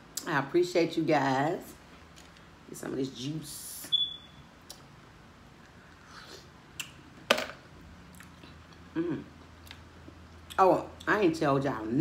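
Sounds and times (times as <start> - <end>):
person chewing food: 8.1 - 11.1
person humming: 8.9 - 9.4.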